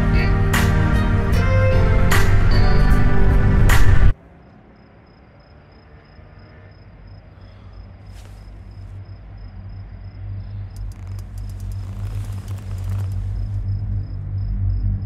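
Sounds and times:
low hum: 1.2 - 15.0
crickets chirping: 4.1 - 15.0
sharp clicks: 10.7 - 13.6.

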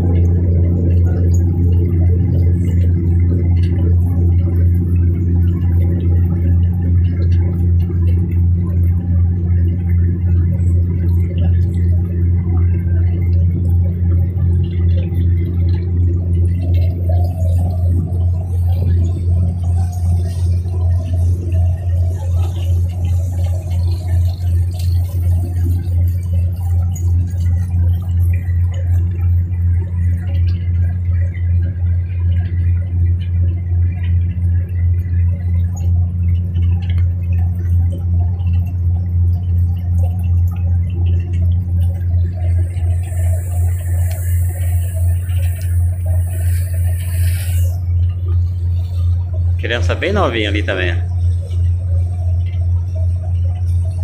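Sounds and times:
boat engine pulsing drone: 0.0 - 54.0
high hiss: 43.1 - 47.8.

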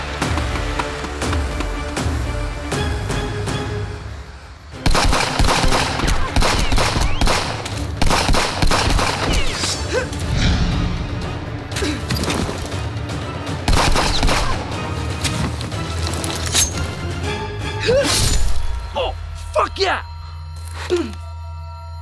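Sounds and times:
film music score: 0.0 - 22.0
rapid gunfire: 4.8 - 9.4, 13.7 - 14.6.

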